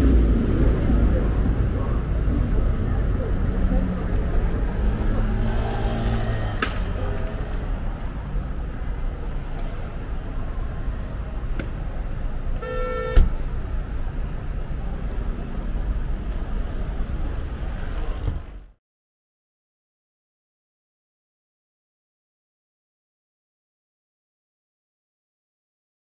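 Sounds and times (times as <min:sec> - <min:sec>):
city street traffic: 0:00.0 - 0:18.8
short car horn toot: 0:12.6 - 0:13.3.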